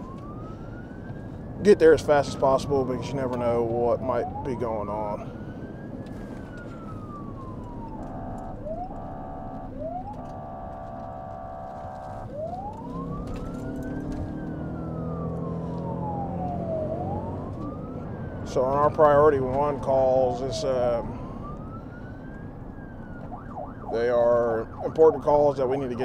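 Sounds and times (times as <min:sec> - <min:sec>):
police siren wailing: 0:00.0 - 0:26.0
siren chirps: 0:00.0 - 0:26.0
car horn blasts: 0:08.0 - 0:12.2.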